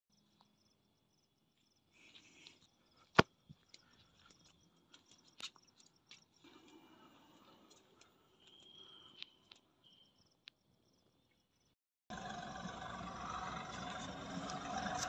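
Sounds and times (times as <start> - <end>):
crickets chirping: 0.1 - 11.8.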